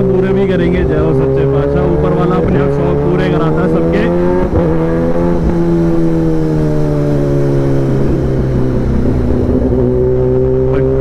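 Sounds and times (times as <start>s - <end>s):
motorcycle engine cruising: 0.0s - 11.0s
wind rush: 2.3s - 11.0s.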